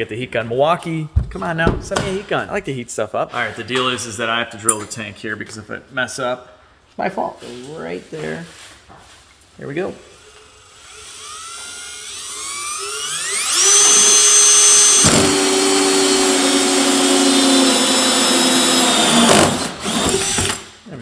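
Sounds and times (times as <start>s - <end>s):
drill cutting through plastic: 9.9s - 20.7s.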